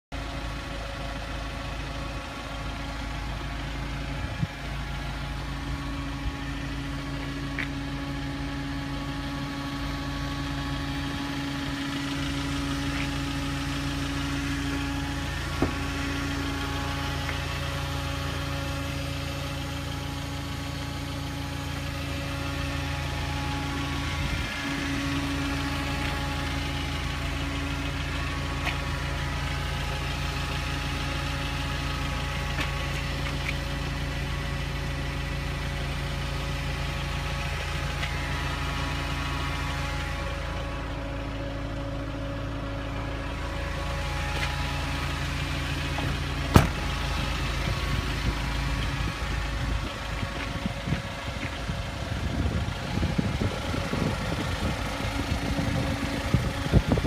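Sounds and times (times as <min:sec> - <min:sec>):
diesel engine idling: 0:00.1 - 0:57.0.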